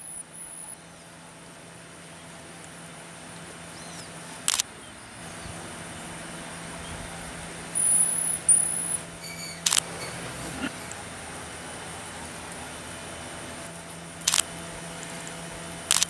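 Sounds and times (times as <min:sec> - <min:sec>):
sharp click: 0:04.0 - 0:04.7, 0:09.6 - 0:09.9, 0:14.2 - 0:14.5
monkey whistling calls: 0:07.7 - 0:10.9.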